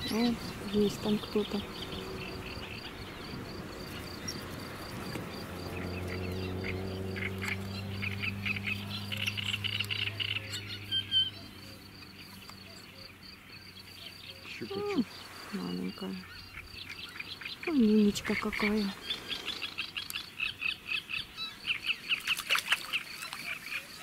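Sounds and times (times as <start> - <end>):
frogs croaking: 0.0 - 24.0
insect ticking: 0.1 - 13.9.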